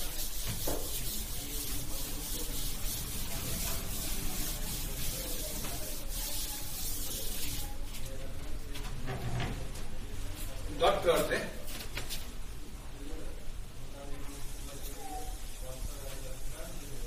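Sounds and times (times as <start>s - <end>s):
duster rubbing on chalkboard: 0.0s - 7.8s.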